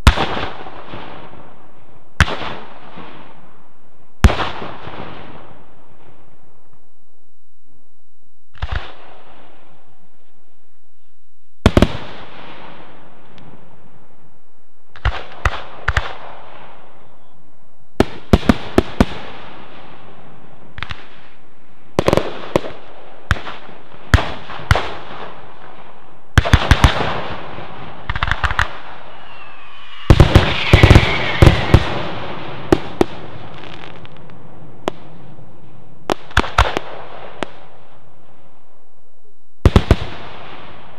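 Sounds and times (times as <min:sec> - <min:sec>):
firework shells bursting: 0:28.0 - 0:35.0
falling firework whistle: 0:28.4 - 0:32.8.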